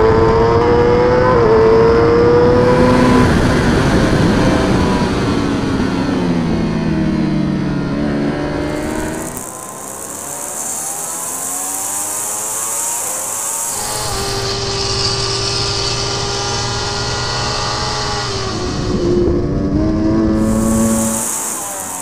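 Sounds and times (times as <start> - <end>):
superbike engine at full throttle: 0.0 - 22.0
wind rushing past camera: 17.9 - 22.0.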